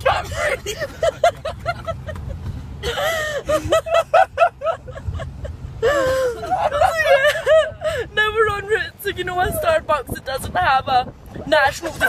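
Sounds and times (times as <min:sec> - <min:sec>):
car road noise hum: 0:00.0 - 0:12.0
women laughing: 0:00.2 - 0:08.1.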